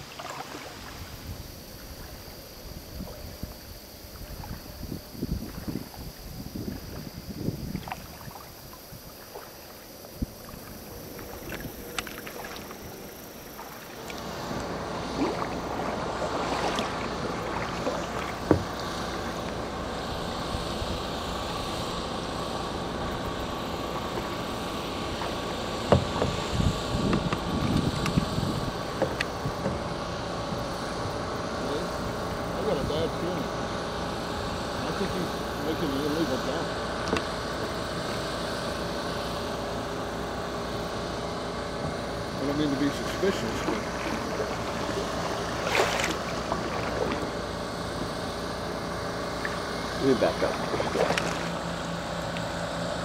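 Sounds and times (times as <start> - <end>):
paddle drips: 0.0 - 20.3, 41.7 - 52.7
truck engine drone: 9.7 - 53.0.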